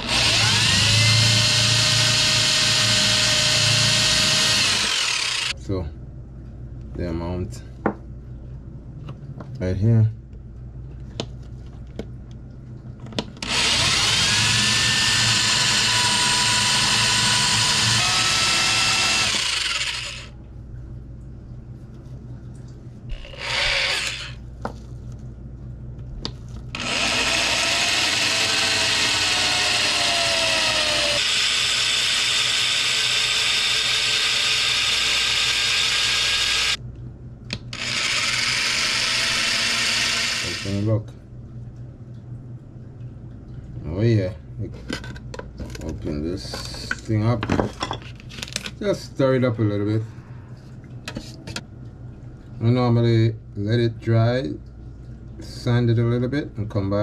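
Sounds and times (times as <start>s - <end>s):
electric drill boring into wood: 0.0s - 5.6s, 13.4s - 20.3s, 23.2s - 24.4s, 26.7s - 36.8s, 37.7s - 40.8s.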